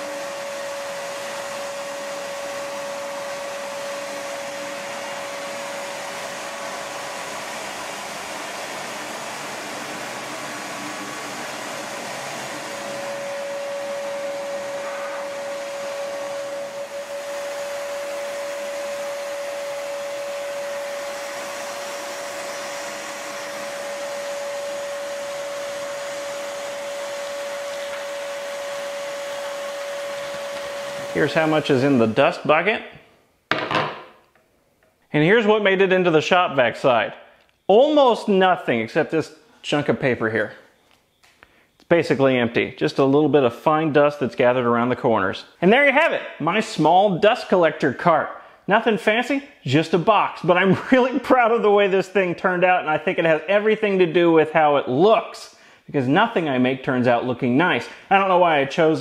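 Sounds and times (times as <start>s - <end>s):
shop vac running: 0.0s - 32.9s, 35.2s - 59.0s.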